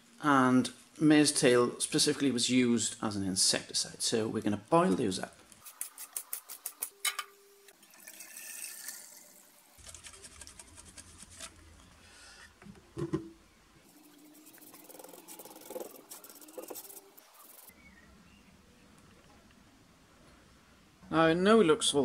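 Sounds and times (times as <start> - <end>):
brush scratching on wood: 9.8 - 11.6, 13.9 - 17.7.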